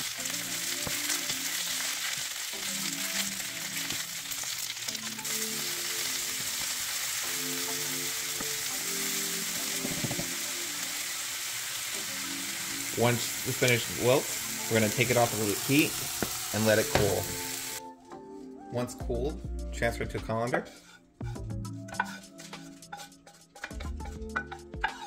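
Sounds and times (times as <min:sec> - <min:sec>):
vegetables sizzling in oil: 0:00.0 - 0:17.8
soft background music: 0:00.0 - 0:25.0
wooden spatula stirring: 0:20.3 - 0:25.0.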